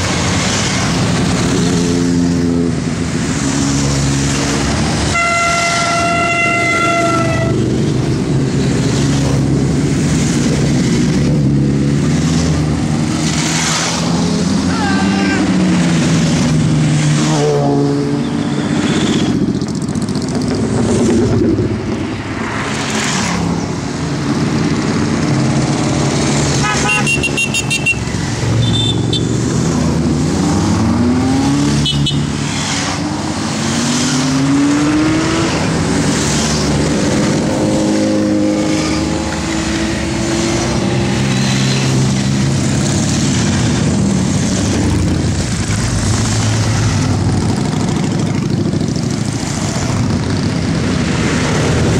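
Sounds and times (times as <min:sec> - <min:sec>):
horn toot: 0:05.1 - 0:07.7, 0:26.6 - 0:29.3, 0:31.7 - 0:32.4
motorcycles riding past: 0:06.7 - 0:51.9.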